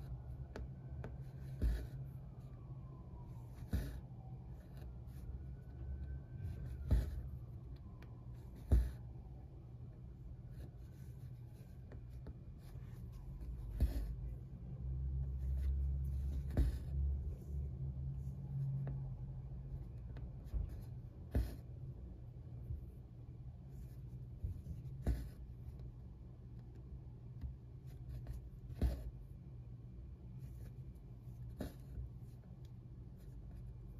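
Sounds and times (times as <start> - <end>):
needle tapping through cloth: 15.4 - 17.2.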